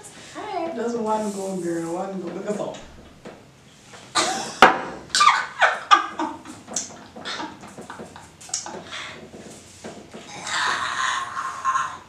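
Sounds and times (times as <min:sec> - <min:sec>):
women laughing and squealing: 0:05.1 - 0:06.6, 0:10.4 - 0:12.0.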